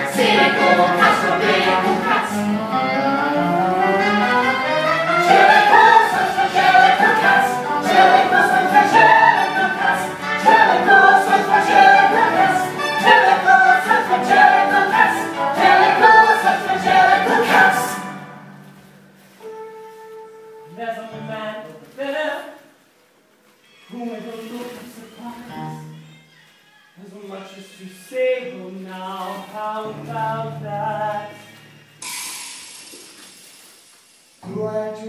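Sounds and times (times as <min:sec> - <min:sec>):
choir singing loudly: 0:00.0 - 0:02.9, 0:04.6 - 0:18.1.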